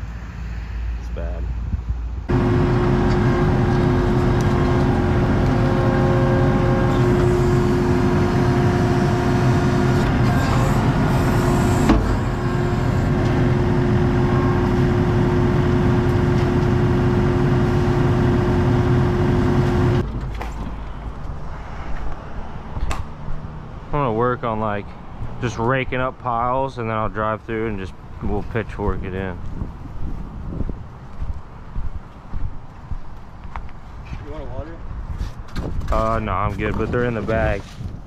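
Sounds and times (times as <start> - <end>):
steady tone: 2.2 - 20.0
diesel engine running: 2.3 - 21.2.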